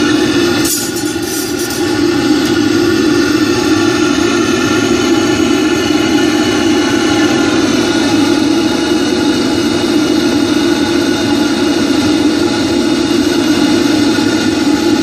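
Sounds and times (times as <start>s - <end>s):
furnace burner roaring: 0.0s - 15.0s.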